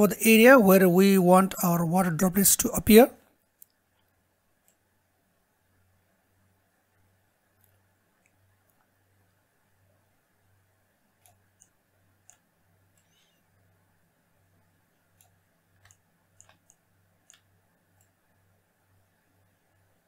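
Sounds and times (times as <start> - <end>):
faint computer mouse clicks: 3.6 - 4.8, 11.2 - 13.4, 15.1 - 18.2.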